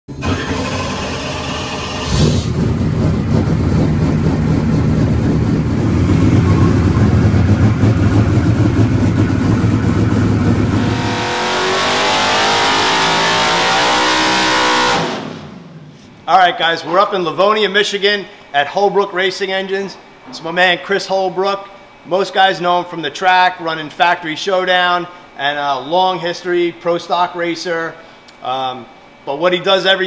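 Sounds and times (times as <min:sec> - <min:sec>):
race engine rumbling and screaming: 0:00.1 - 0:16.0.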